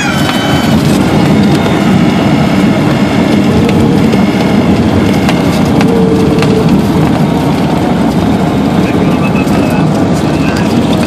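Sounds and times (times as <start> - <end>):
airplane engine running: 0.0 - 11.0
wheels rumbling over turf: 0.0 - 11.0.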